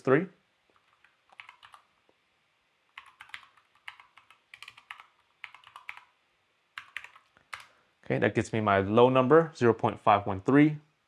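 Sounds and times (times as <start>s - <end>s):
keyboard typing clicks: 0.7s - 1.9s, 2.9s - 6.1s, 6.8s - 7.7s.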